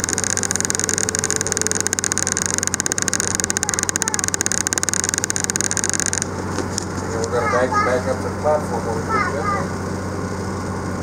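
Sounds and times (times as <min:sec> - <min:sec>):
fast even rattle: 0:00.0 - 0:06.9.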